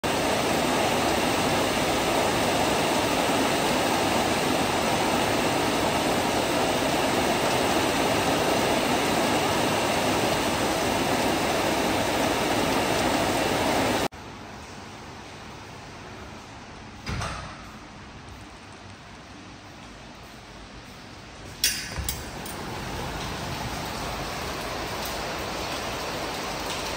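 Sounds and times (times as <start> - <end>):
water rushing: 0.0 - 14.1, 21.7 - 26.9.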